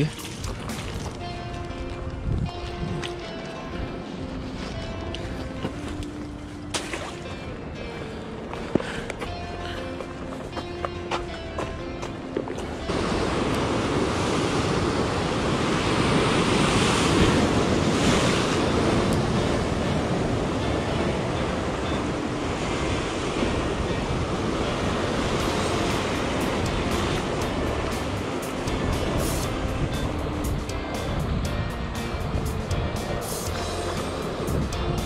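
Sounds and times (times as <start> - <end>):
background music: 0.0 - 35.0
wind on microphone: 0.4 - 6.1, 12.8 - 35.0
ocean surf washing over rocks: 12.6 - 35.0.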